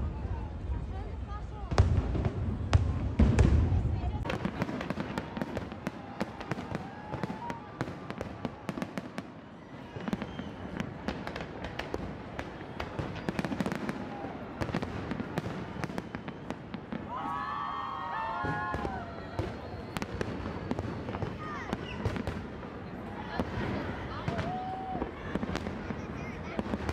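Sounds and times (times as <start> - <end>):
fireworks bangs and crackles: 0.0 - 26.9.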